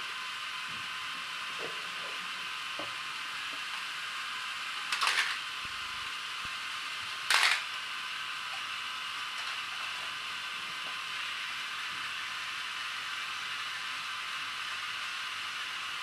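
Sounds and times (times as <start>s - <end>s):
toy train motors whirring: 2.2s - 16.0s.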